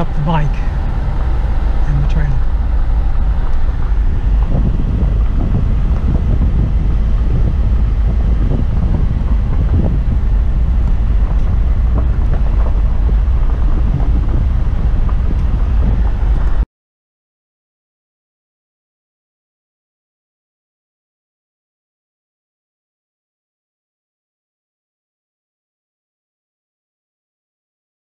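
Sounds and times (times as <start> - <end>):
car interior road rumble: 0.0 - 16.6.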